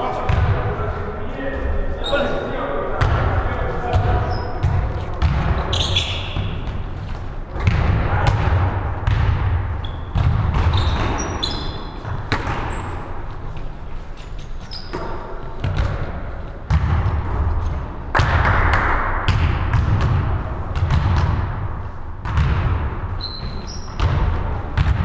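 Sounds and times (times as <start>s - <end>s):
basketball bouncing: 0.3s - 0.6s, 3.9s - 13.1s, 14.8s - 25.0s
sneakers squeaking on wood: 2.0s - 2.4s, 3.9s - 7.3s, 9.8s - 13.2s, 14.1s - 15.9s, 23.2s - 24.2s.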